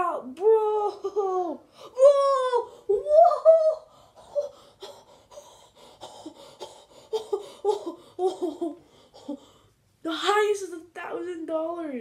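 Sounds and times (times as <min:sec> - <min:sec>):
boy laughing: 0:00.5 - 0:05.0, 0:06.1 - 0:09.4.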